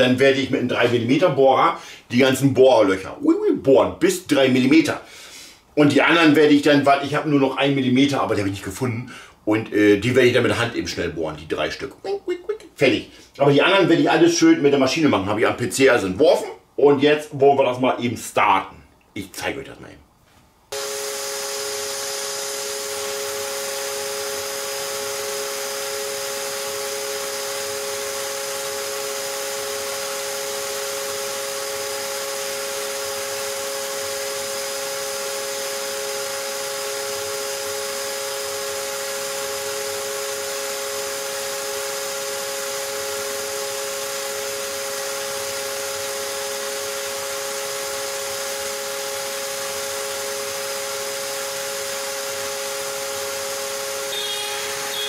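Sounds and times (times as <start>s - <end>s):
router spindle whining: 20.7s - 55.0s.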